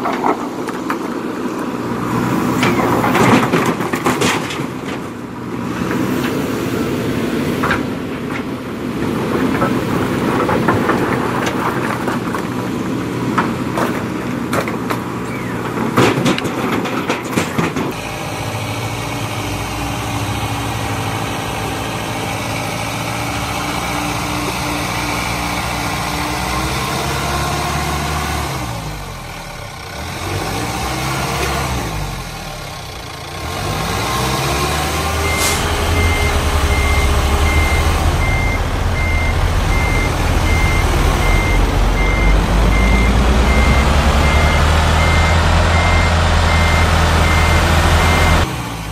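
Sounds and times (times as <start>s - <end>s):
heavy truck engine running: 0.0s - 48.9s
reversing beeper: 35.1s - 48.5s.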